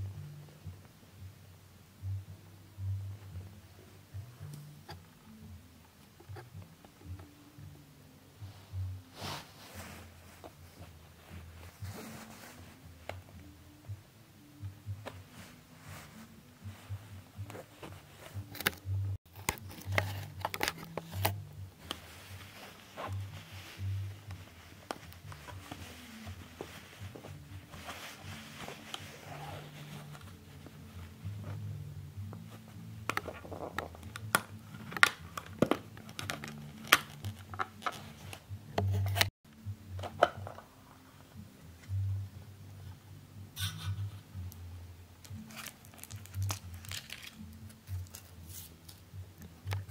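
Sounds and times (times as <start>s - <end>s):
plastic case clicks and scrapes: 18.5s - 22.0s.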